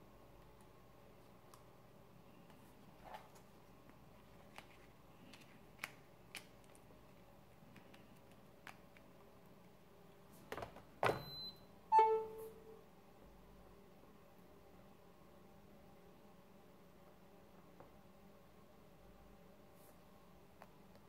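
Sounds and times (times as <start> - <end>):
short electronic chime: 11.2 - 12.6.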